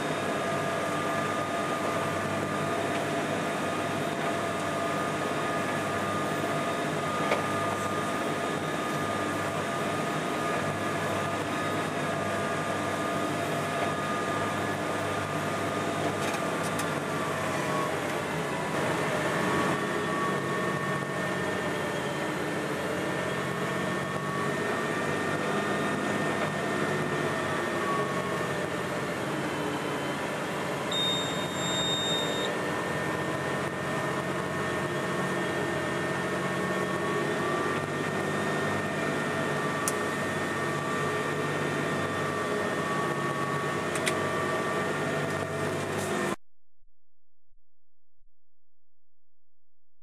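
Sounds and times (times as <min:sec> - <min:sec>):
tractor engine drone: 0:00.0 - 0:46.4
high beep: 0:30.9 - 0:32.5.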